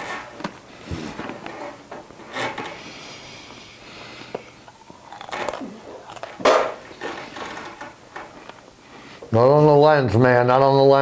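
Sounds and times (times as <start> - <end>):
chewing and crunching: 4.2 - 7.8.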